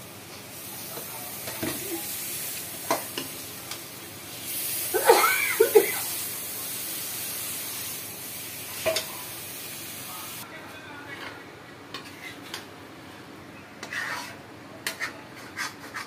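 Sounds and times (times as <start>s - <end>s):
chicken sizzling in hot oil: 0.0s - 10.4s.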